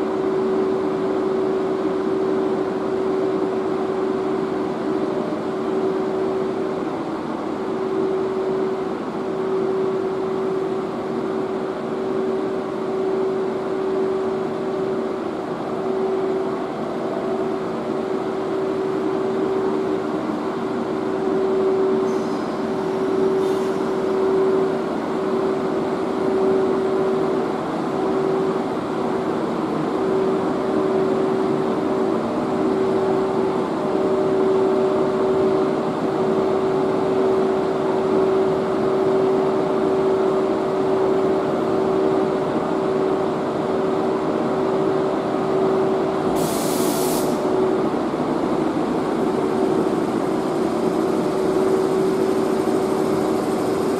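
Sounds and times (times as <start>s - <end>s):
locomotive machinery humming: 0.0s - 53.9s.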